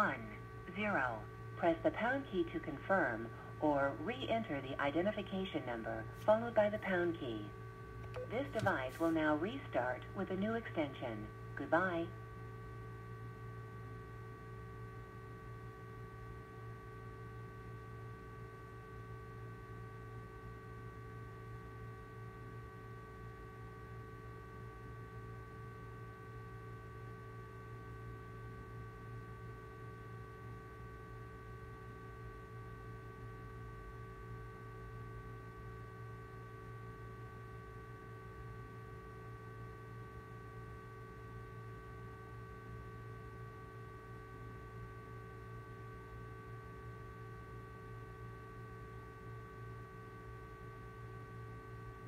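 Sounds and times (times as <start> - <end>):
low hum: 0.0 - 20.8.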